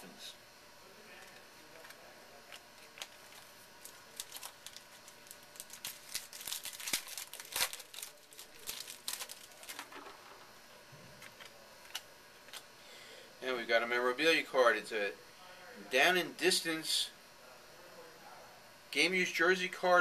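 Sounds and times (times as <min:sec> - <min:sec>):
wrapper crinkling and tearing: 0:01.8 - 0:10.2.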